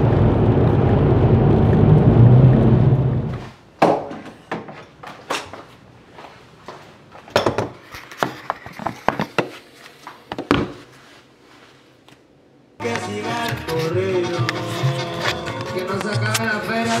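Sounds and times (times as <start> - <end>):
objects knocking on countertop: 7.4 - 7.8.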